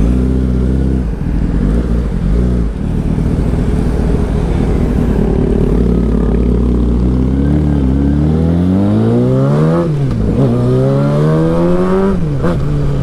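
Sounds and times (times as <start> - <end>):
motorcycle engine running: 0.0 - 8.2.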